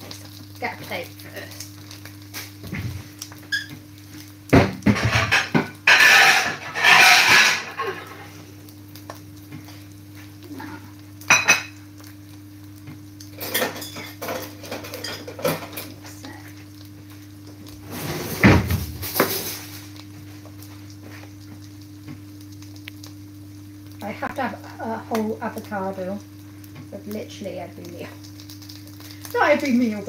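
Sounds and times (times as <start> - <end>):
steady low hum: 4.0 - 30.0
plate and cutlery clattering: 4.9 - 8.0.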